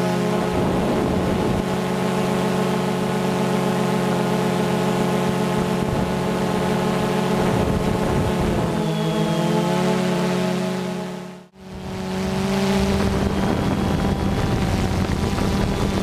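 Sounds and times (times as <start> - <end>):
drone propellers humming: 0.0 - 16.0
wind buffeting microphone: 0.4 - 1.8, 7.3 - 8.8, 11.7 - 16.0.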